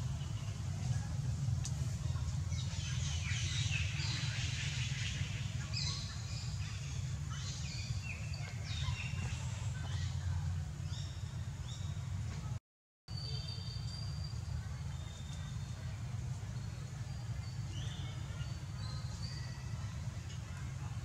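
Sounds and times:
steady low rumble: 0.0s - 12.6s.

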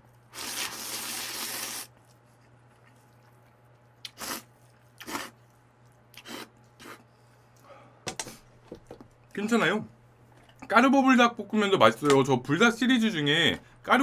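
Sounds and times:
person slurping noodles: 0.3s - 1.9s, 4.0s - 5.4s
quiet chewing: 1.9s - 7.7s.

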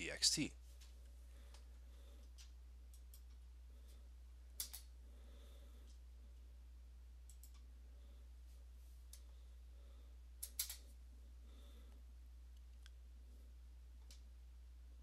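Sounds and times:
low steady hum: 0.0s - 15.0s
computer mouse clicks: 2.2s - 3.4s, 4.6s - 4.9s, 7.2s - 7.7s, 10.4s - 10.8s.

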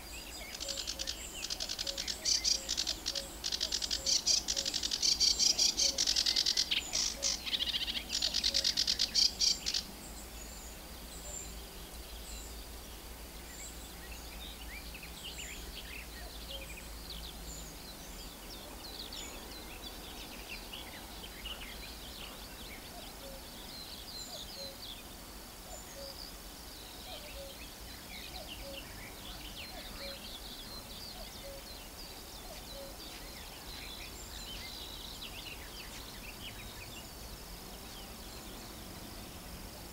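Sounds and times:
bird harsh chattering song: 0.0s - 9.9s
distant songbirds chirping: 0.0s - 39.9s.

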